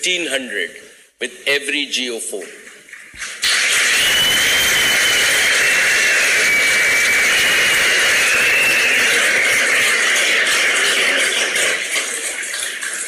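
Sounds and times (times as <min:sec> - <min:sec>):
audience applauding: 0:03.2 - 0:13.0.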